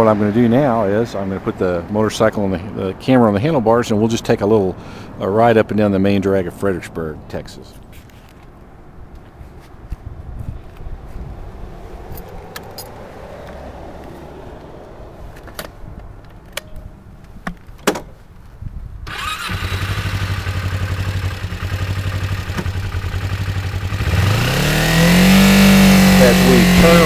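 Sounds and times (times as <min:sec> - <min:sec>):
handling clicks and knocks: 0:12.2 - 0:13.6, 0:15.3 - 0:18.5
motorcycle engine starting and idling: 0:19.0 - 0:27.0.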